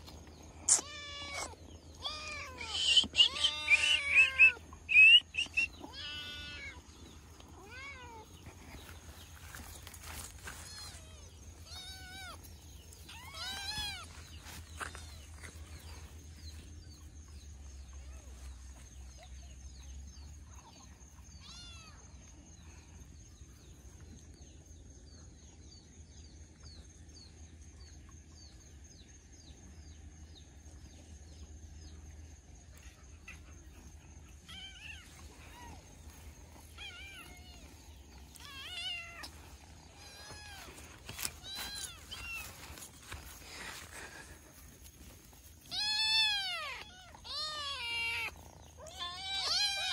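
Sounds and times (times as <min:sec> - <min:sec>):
kittens mewing: 0:00.6 - 0:08.6, 0:10.5 - 0:15.4, 0:33.2 - 0:42.7, 0:45.6 - 0:49.9.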